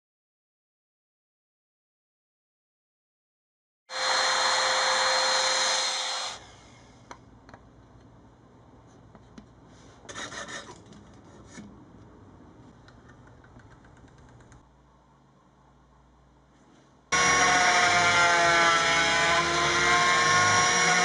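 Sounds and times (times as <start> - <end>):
loud power tool running: 3.9 - 6.6, 17.2 - 21.0.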